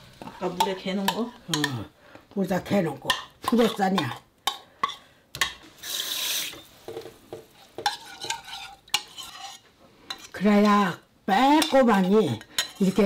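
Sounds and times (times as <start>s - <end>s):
metal spoon scraping bowl: 5.8s - 10.8s, 11.6s - 13.0s.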